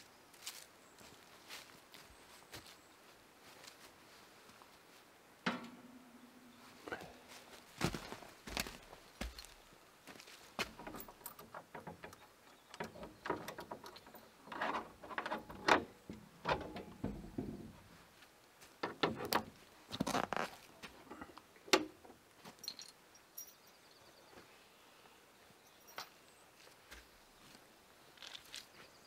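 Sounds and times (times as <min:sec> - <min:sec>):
wooden door pulled open: 0:10.7 - 0:17.8.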